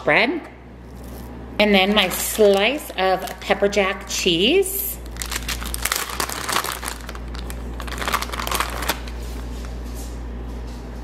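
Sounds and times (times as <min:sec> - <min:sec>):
low steady hum: 0:00.0 - 0:11.0
plastic package crinkling: 0:00.9 - 0:04.0, 0:05.0 - 0:09.7.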